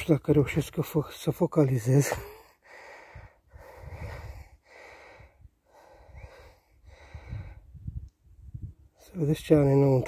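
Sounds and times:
hissy breathing: 2.5s - 7.8s.

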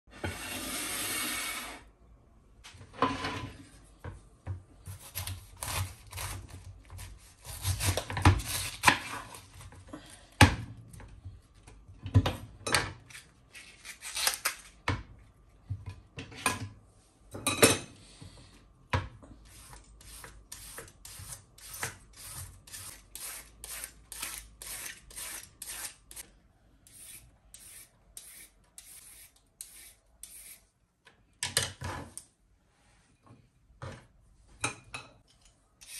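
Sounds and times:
knife cutting cabbage on wooden board: 4.9s - 9.5s
carrot being pared scraping: 19.5s - 26.2s, 26.9s - 30.6s.

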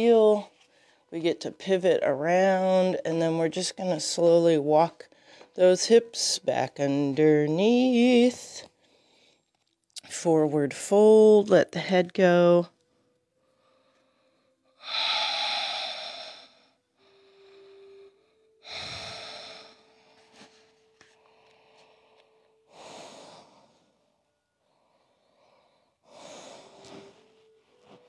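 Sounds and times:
person breathing deeply: 13.4s - 20.2s, 21.2s - 24.0s, 24.6s - 27.4s.

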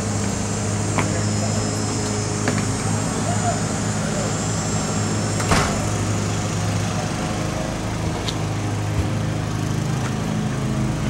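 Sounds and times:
small engine running: 0.0s - 11.0s.

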